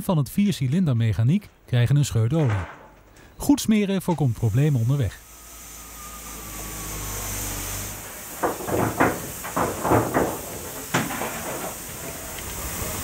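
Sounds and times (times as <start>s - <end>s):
steam hissing in spurts: 4.1s - 13.0s.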